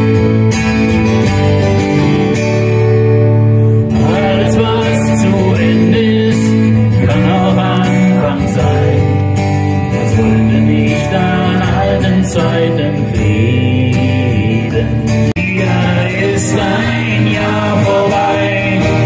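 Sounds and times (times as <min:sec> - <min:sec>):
acoustic guitars playing: 0:00.0 - 0:19.0
man singing: 0:03.9 - 0:19.0.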